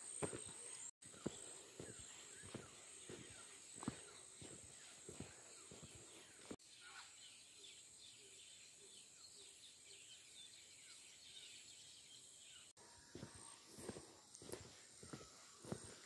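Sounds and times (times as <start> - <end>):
footsteps on gravel: 0.0 - 6.6, 13.0 - 16.0
faint bird chirps: 0.0 - 16.0.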